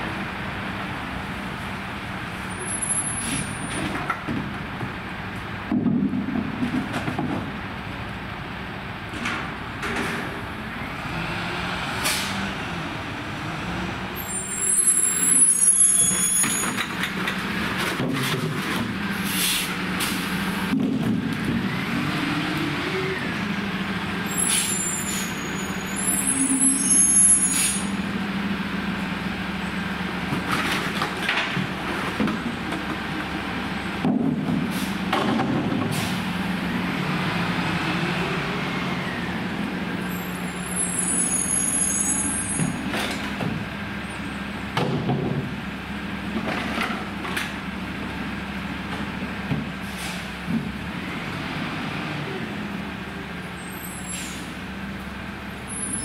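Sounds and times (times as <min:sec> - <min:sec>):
high brake squeals: 0:02.6 - 0:03.7, 0:14.2 - 0:16.9, 0:24.2 - 0:28.0, 0:40.1 - 0:42.9, 0:53.6 - 0:54.6, 0:55.6 - 0:56.0.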